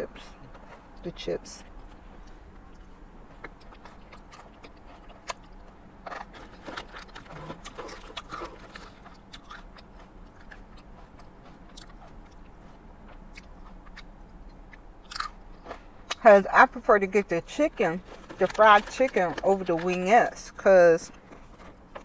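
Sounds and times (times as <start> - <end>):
wet chewing with crunches: 0.2 - 16.5.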